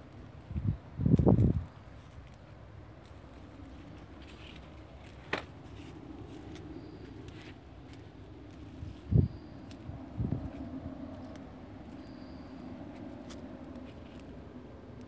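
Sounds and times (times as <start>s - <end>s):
faint outdoor background noise: 0.0s - 15.0s
low rumble on microphone: 8.5s - 12.9s.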